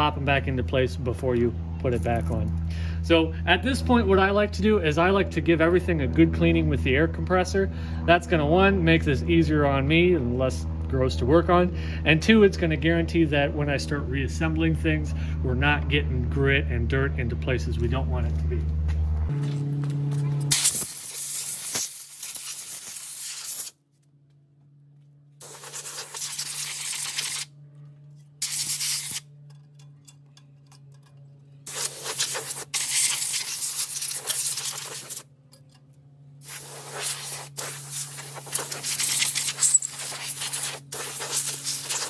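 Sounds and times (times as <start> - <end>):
compressed air hissing from blow gun: 20.5 - 23.7, 25.4 - 27.5, 28.4 - 29.2, 31.7 - 35.2, 36.4 - 42.0.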